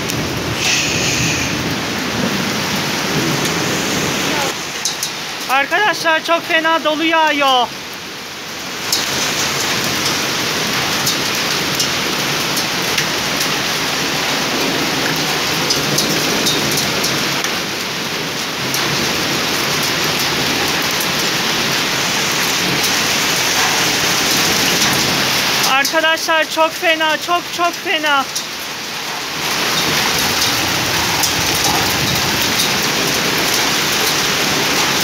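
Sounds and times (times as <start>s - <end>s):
hail and rain hissing: 0.0s - 35.0s
hailstones clicking on hard surfaces: 8.8s - 35.0s.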